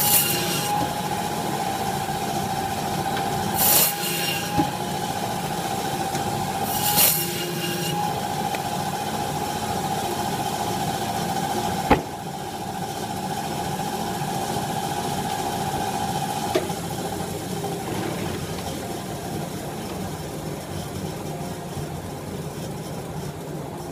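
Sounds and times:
saw blade rasping through bone: 0.0s - 0.8s, 3.6s - 4.6s, 6.6s - 8.0s
band saw whining: 0.0s - 23.9s
steady hum: 4.4s - 23.9s
sharp knock: 11.9s - 12.2s.

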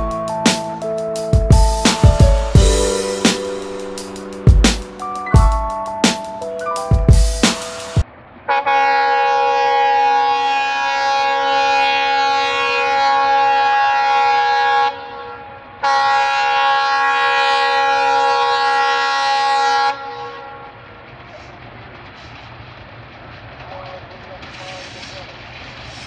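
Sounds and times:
locomotive air horn blasts: 0.0s - 5.2s, 8.5s - 20.9s
faint train rumble: 0.0s - 26.0s.

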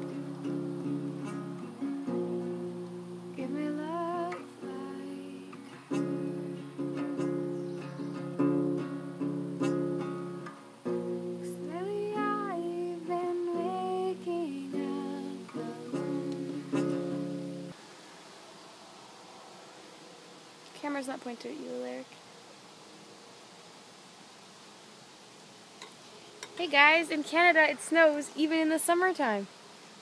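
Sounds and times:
person singing: 0.0s - 7.3s, 11.3s - 17.7s
acoustic guitar strumming chords: 0.0s - 17.8s.

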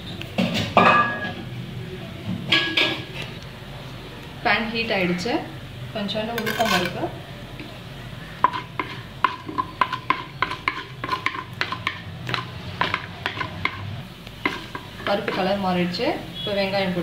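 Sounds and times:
frying in hot oil: 0.0s - 3.6s, 4.4s - 17.0s
spatula scraping a pan: 6.4s - 7.0s, 8.4s - 13.6s, 14.4s - 15.6s.

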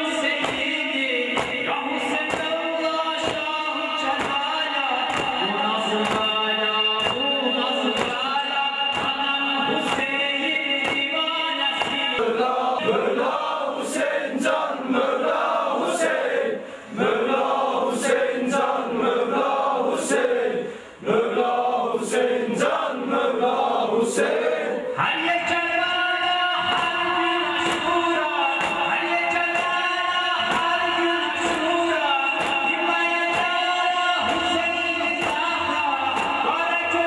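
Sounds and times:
men chanting in unison: 0.0s - 37.0s
chest-beating thumps: 6.0s - 8.3s.

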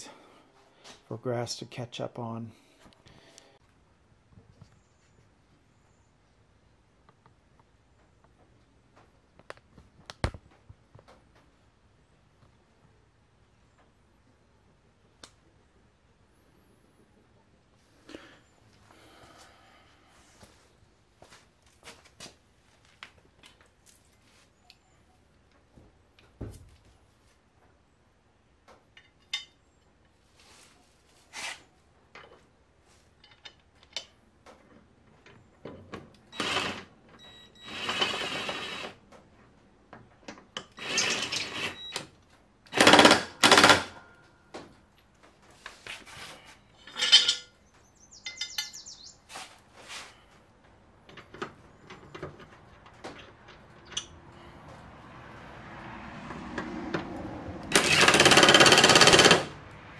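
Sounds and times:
impact driver hammering: 42.7s - 44.1s, 57.7s - 59.6s
metal clinks and clunks: 46.8s - 47.6s, 48.2s - 48.8s.

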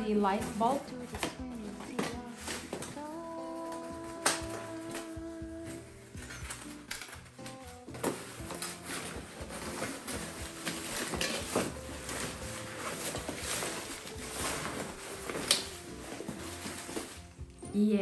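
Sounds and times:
bag rustling: 0.0s - 18.0s
metal stands clicking and clacking: 6.1s - 17.1s.

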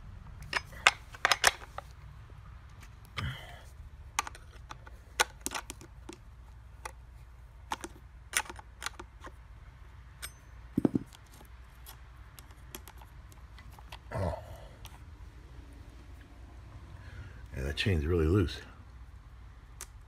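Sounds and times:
light metallic clicks and clinks: 10.2s - 11.2s.

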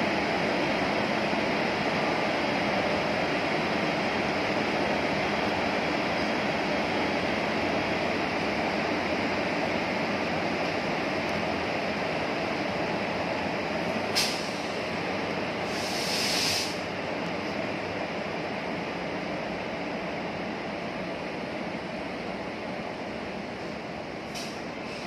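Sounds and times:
air hiss: 14.1s - 14.8s, 15.6s - 16.8s.

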